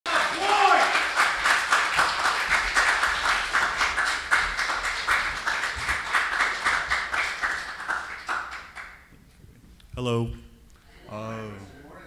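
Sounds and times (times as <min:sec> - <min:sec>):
people clapping: 0:00.1 - 0:09.4.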